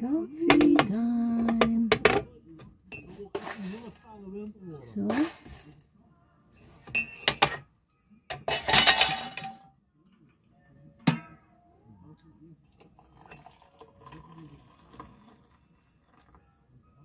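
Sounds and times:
metal kettle clattering: 8.3s - 9.6s.

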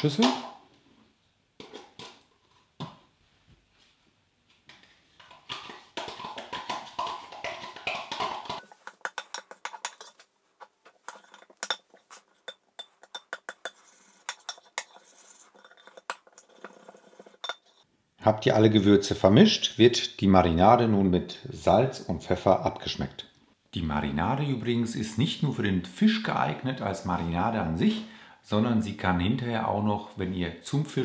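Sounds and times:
metal spoon scraping a bowl: 5.3s - 17.9s.

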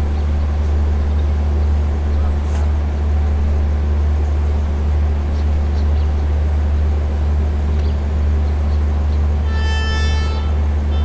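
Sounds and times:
diesel engine idling drone: 0.0s - 11.0s.

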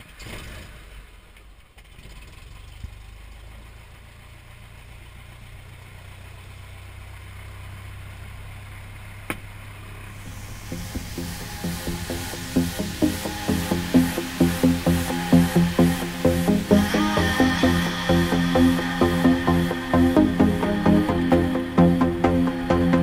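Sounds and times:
piston aircraft engine idling: 8.8s - 23.0s.

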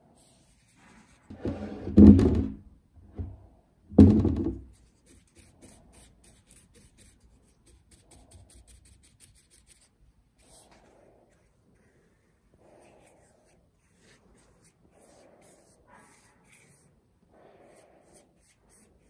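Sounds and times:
thump: 1.3s - 4.7s.

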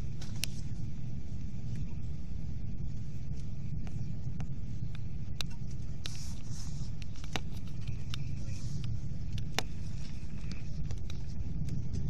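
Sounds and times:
sharp clicks and ticks: 3.3s - 6.2s, 7.0s - 12.0s.

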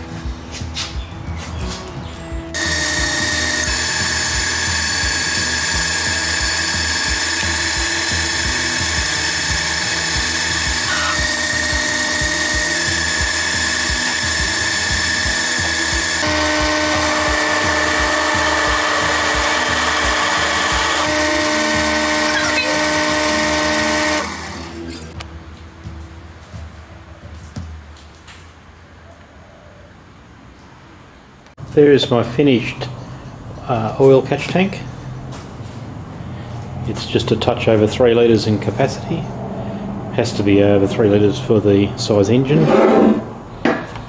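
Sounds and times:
metal lathe whining: 2.6s - 25.2s.

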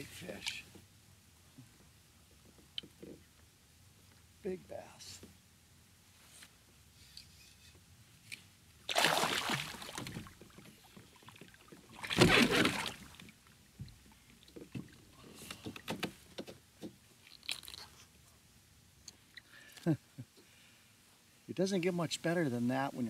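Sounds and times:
fish splashing at surface: 8.9s - 10.3s, 11.9s - 13.2s
knocks and rustling: 14.6s - 17.0s.

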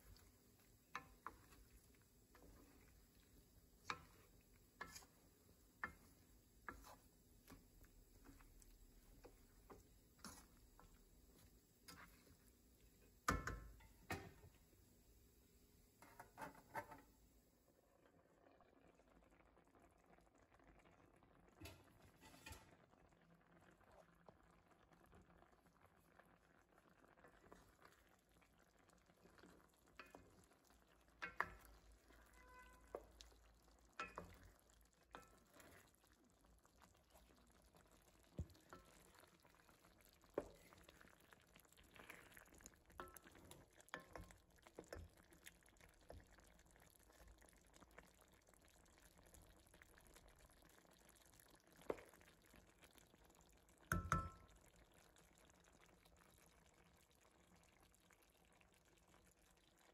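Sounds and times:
wooden spoon stirring stew: 0.0s - 14.6s, 20.8s - 59.9s
knocks and scrapes against pan: 3.8s - 12.4s, 13.2s - 14.5s, 16.0s - 17.1s, 21.6s - 22.7s.

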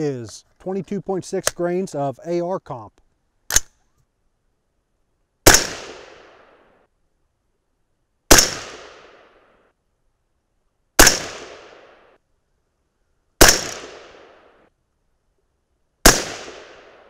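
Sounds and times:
rifle shots with echo: 5.4s - 6.7s, 8.3s - 9.5s, 11.0s - 12.2s, 13.4s - 14.6s, 16.0s - 17.0s.

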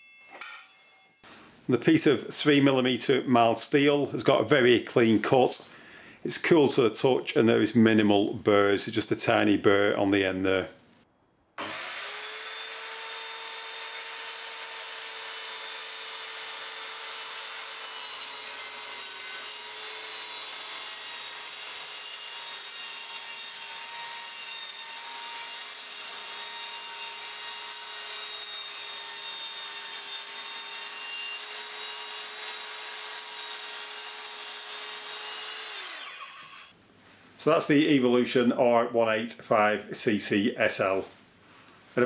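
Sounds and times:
blade cutting through wood: 11.6s - 36.7s.

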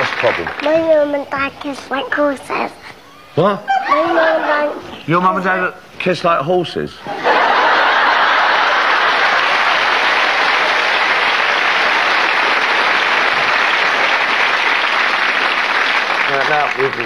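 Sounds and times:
audience applauding: 0.0s - 0.7s, 7.3s - 17.0s.

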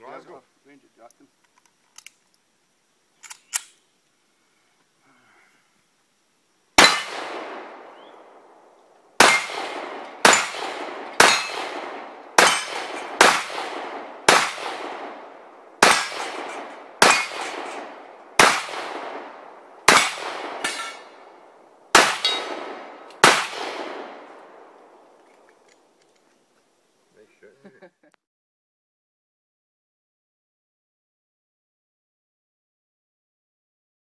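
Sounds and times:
pistol shots with ringing tail: 6.8s - 8.6s, 9.2s - 25.0s.

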